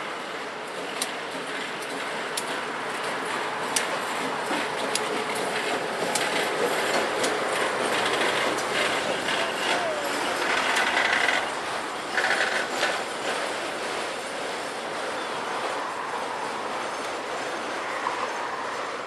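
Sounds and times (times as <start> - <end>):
train wheels clattering: 0.0 - 19.0
wheel squeals: 7.8 - 13.1, 15.1 - 19.0.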